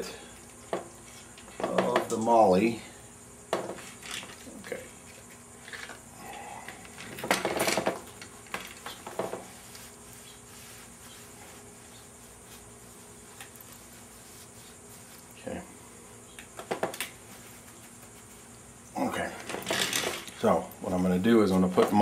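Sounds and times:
faint steady hum: 0.0 - 22.0
small parts clinking and knocking: 3.6 - 4.5, 5.6 - 6.0, 6.6 - 9.4, 19.4 - 20.4
short rustle: 7.8 - 16.1, 17.1 - 18.9.

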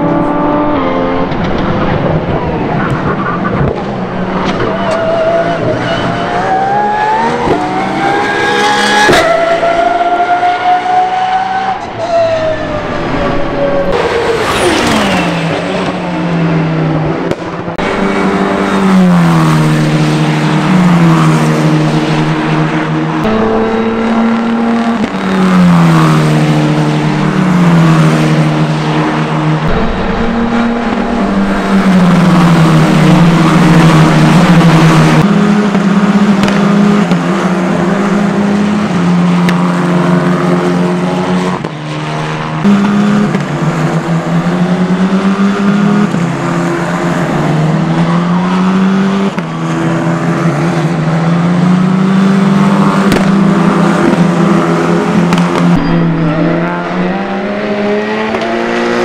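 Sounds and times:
racing car engine accelerating: 0.0 - 59.0
racing cars passing downshifting: 0.0 - 59.0.

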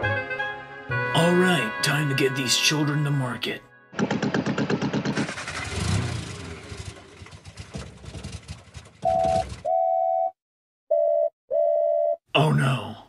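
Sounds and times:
steam traction engine running: 4.0 - 5.8, 6.6 - 9.6.

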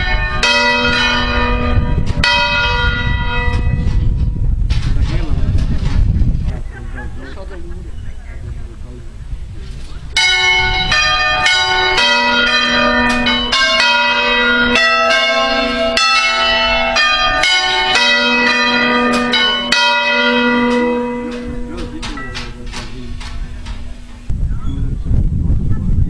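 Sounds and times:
church bells ringing: 0.0 - 4.4, 10.1 - 24.3.

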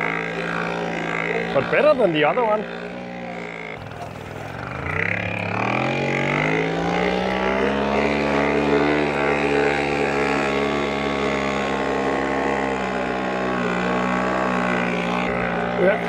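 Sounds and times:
moped engine running: 0.0 - 16.0.

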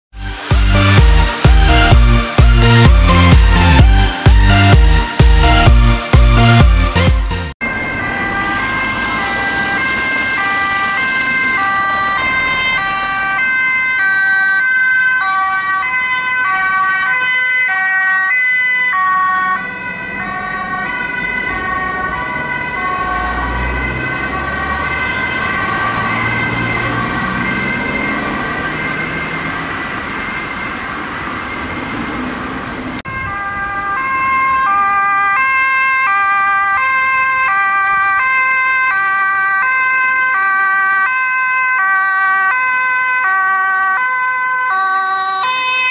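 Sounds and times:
vehicle engine: 0.2 - 17.2, 19.0 - 34.8
two-tone emergency siren: 0.2 - 32.4, 33.0 - 45.9.

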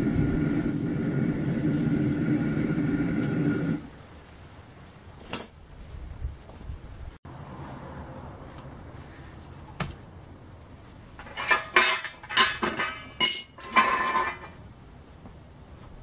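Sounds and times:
metal tools clinking on steel tray: 11.2 - 14.6.

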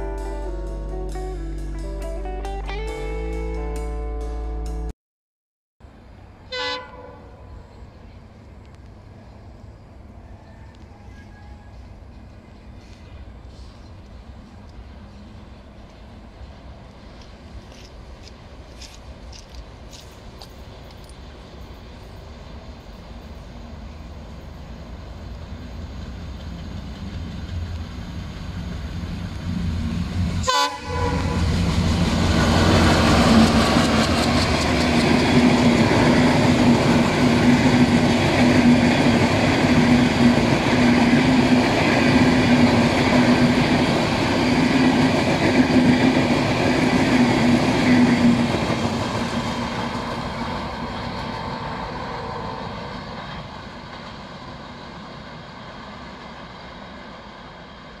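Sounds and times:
train rumbling past on rails: 5.8 - 58.0
train horn: 6.4 - 7.7, 10.2 - 12.0, 30.4 - 33.2.

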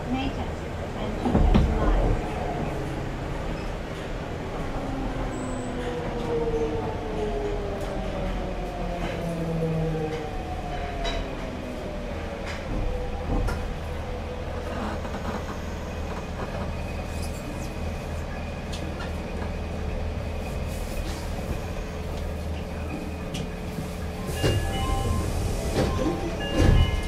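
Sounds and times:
train wheels rumbling on rail: 0.0 - 27.0
rail joint clicks: 12.2 - 19.8, 21.0 - 27.0.

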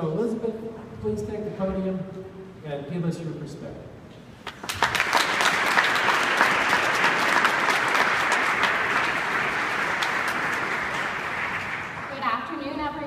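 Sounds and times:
audience applauding: 4.4 - 12.2.

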